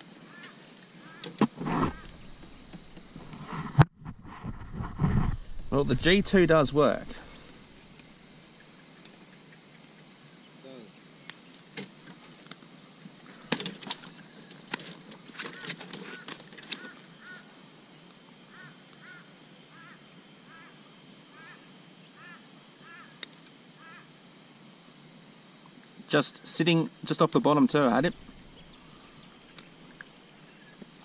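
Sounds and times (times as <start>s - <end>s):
bird calling: 0.3s - 3.4s, 15.4s - 17.6s, 18.5s - 23.2s, 23.8s - 24.1s, 27.8s - 31.0s.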